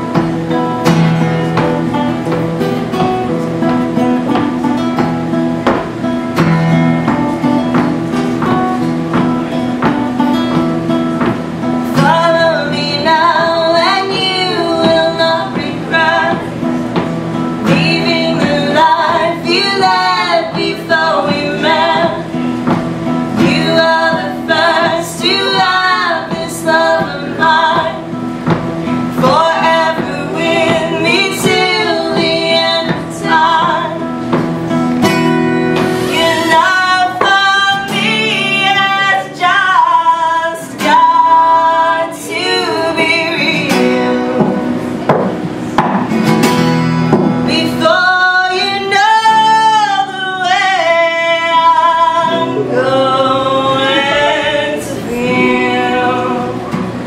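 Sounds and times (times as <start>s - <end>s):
strummed acoustic guitars: 0.0s - 57.0s
women singing: 11.2s - 44.9s, 47.4s - 57.0s.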